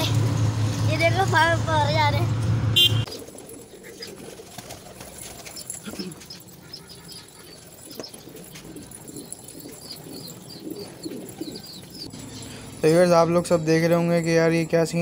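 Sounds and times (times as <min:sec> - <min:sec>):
wing flaps: 0:03.1 - 0:06.1
pigeons cooing: 0:03.1 - 0:12.8.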